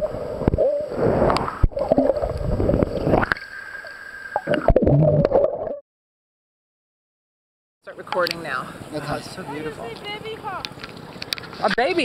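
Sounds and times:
underwater gurgling and bubbling: 0:00.0 - 0:05.8.

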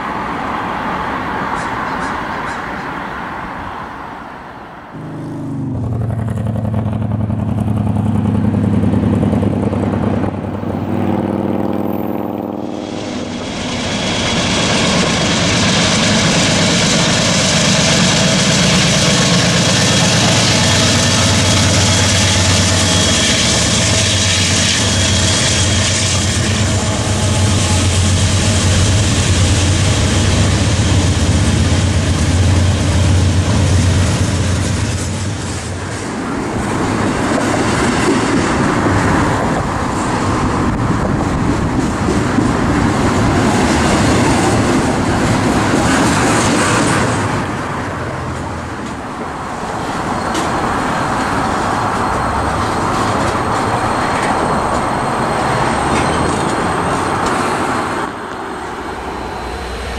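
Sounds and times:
freight locomotives running: 0:00.0 - 0:59.9
train wheels clattering on rails: 0:12.8 - 0:59.9.

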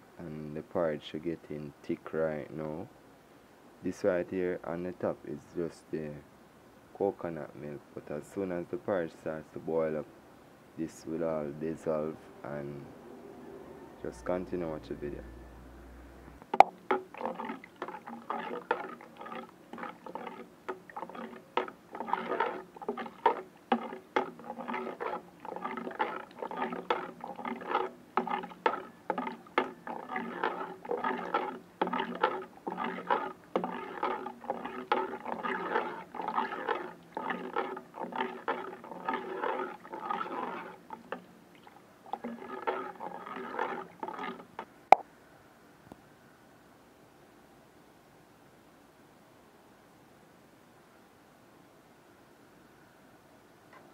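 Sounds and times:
utensil scraping and knocking pot: 0:16.5 - 0:41.3, 0:42.1 - 0:44.7
thick porridge sloshing: 0:16.6 - 0:44.7.

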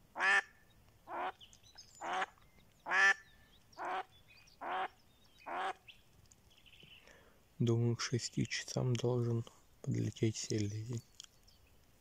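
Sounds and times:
duck quacking: 0:00.2 - 0:00.5, 0:01.1 - 0:01.4, 0:02.0 - 0:02.3, 0:02.9 - 0:03.2, 0:03.8 - 0:04.9, 0:05.5 - 0:05.8.

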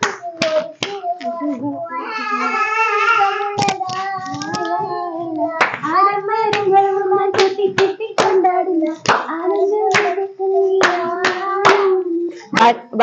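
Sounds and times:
hands clapping: 0:00.0 - 0:01.4, 0:05.5 - 0:08.4, 0:09.0 - 0:10.2, 0:10.8 - 0:12.0
person singing long notes: 0:00.0 - 0:12.8.

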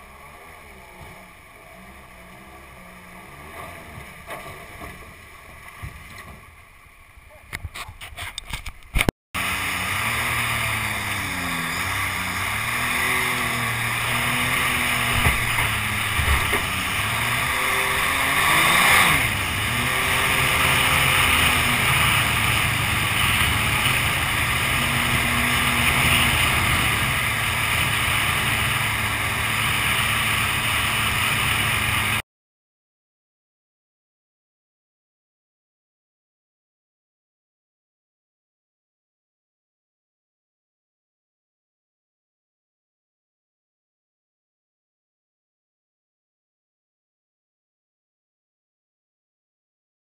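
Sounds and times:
boat engine: 0:00.0 - 0:08.8, 0:09.4 - 0:32.2
water rushing: 0:09.4 - 0:32.2.

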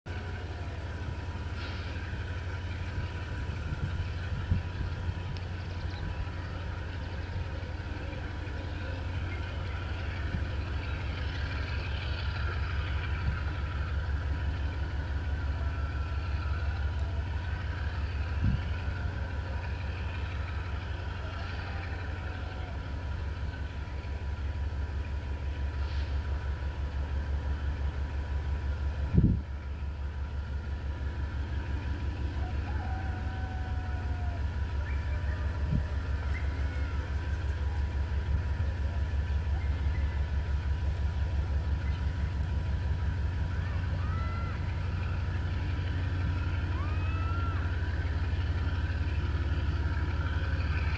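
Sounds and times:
diesel locomotive rumbling: 0:00.0 - 0:50.9.

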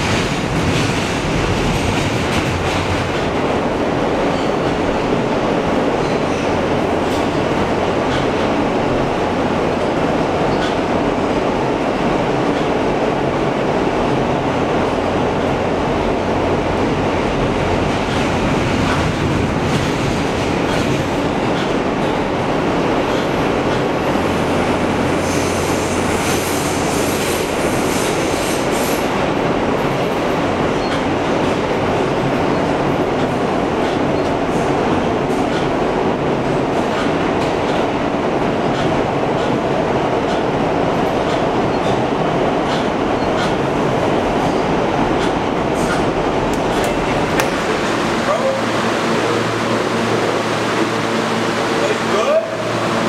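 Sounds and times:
subway wheels rumbling on track: 0:00.0 - 0:53.0
clicks over rail joints: 0:08.1 - 0:08.5.

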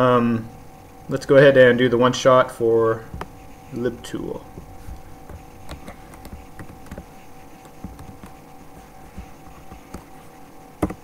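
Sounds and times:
electrical hum: 0:00.0 - 0:11.0
keyboard and mouse clicks: 0:04.9 - 0:10.2, 0:10.8 - 0:11.0.

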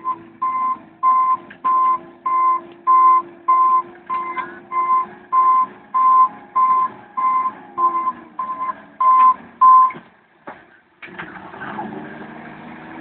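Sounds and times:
reversing alarm beeping: 0:00.0 - 0:10.0
faint engine running: 0:00.0 - 0:13.0.

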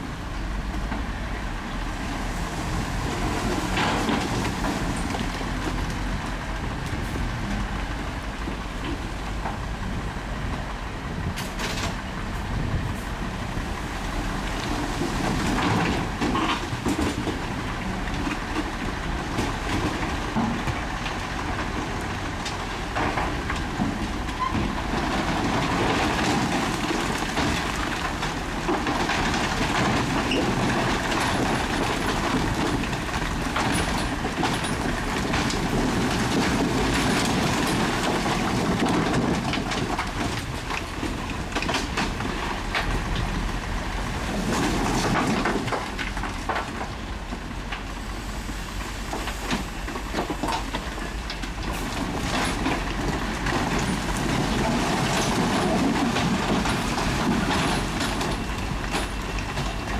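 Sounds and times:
diesel engine under load: 0:00.0 - 0:59.9
steel tracks clanking: 0:18.6 - 0:59.9.

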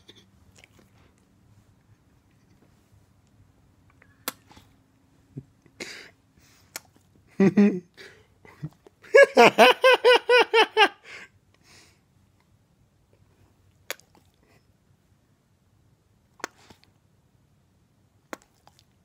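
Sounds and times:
person laughing high-pitched: 0:08.6 - 0:11.0.

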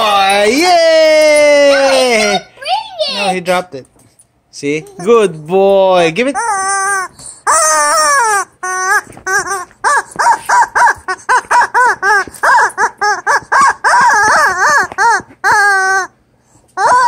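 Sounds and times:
squeaky toy chicken squeaking: 0:06.2 - 0:16.2, 0:16.8 - 0:17.0.

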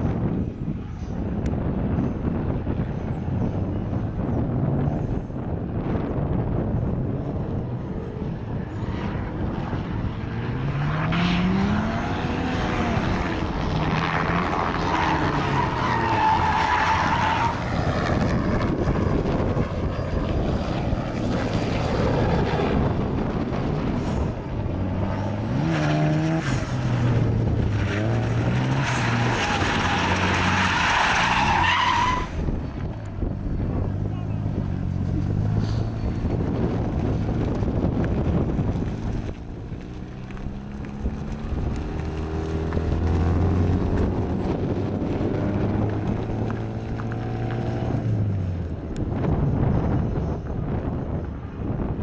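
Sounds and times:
rotary engine revving: 0:07.8 - 0:49.4
tyres squealing: 0:15.0 - 0:17.6, 0:27.9 - 0:32.4.

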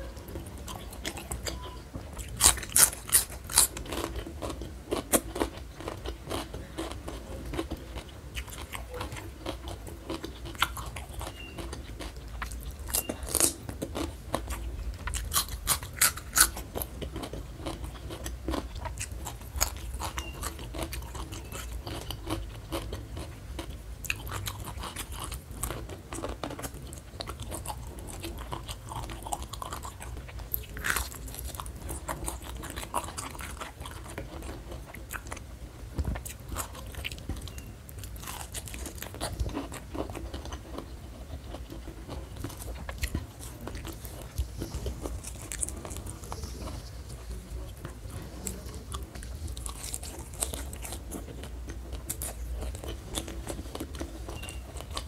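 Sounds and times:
chewing and crunching vegetables: 0:00.0 - 0:55.0.

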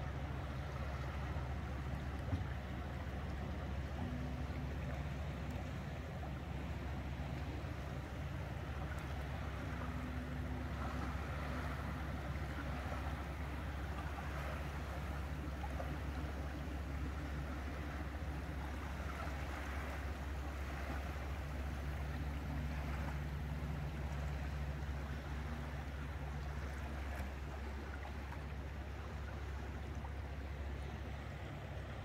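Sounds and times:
boat engine running: 0:00.0 - 0:32.0
water rushing past hull: 0:00.0 - 0:32.0.

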